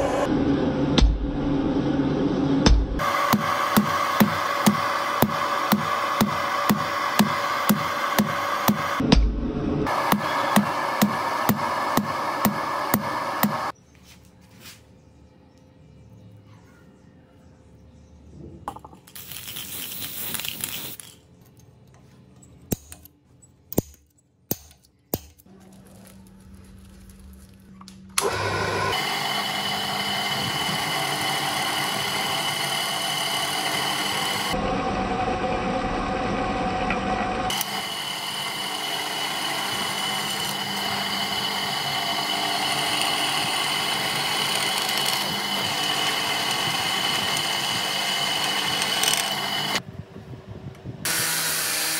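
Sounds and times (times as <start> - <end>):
drill press drilling steel: 3.0 - 9.0, 9.9 - 13.7, 28.2 - 49.8.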